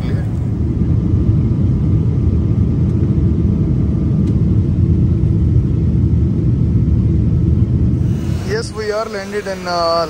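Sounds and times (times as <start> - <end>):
jet engines rumbling: 0.0 - 10.0
rushing airflow: 0.0 - 10.0.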